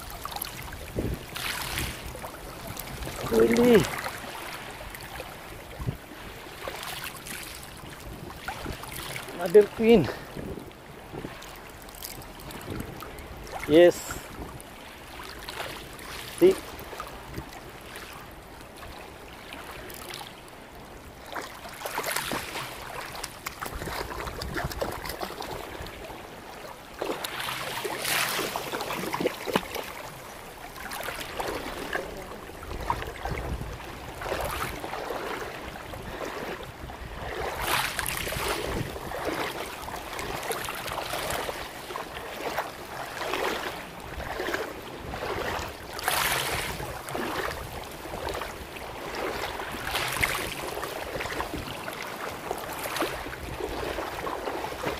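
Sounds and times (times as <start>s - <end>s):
seawater splashing around legs: 21.3s - 36.6s, 37.2s - 54.9s.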